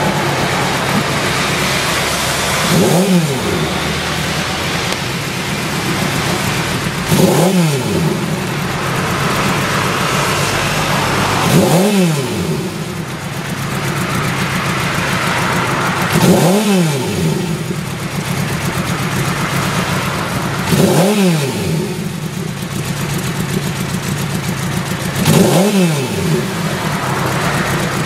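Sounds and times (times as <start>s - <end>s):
motorcycle engine idling and revving: 0.0s - 28.0s.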